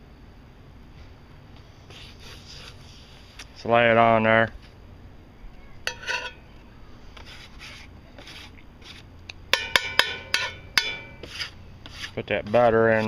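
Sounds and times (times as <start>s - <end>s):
metal utensils clinking on pan: 5.9s - 6.4s, 9.5s - 11.2s.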